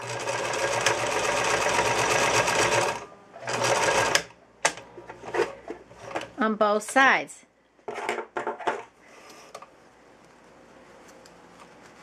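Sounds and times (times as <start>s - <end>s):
electric sewing machine stitching: 0.0s - 4.3s.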